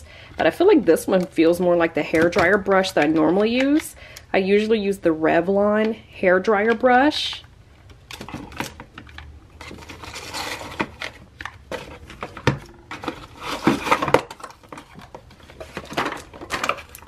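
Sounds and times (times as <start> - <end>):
rustling and scraping: 7.9 - 17.0.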